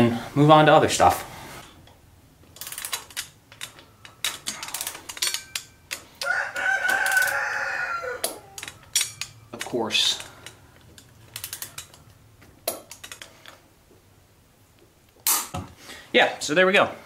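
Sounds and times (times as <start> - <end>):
hand ratchet clicking: 1.8 - 13.6.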